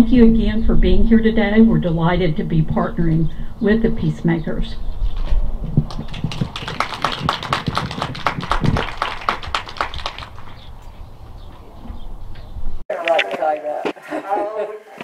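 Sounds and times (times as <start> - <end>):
audience applauding: 5.9 - 10.7.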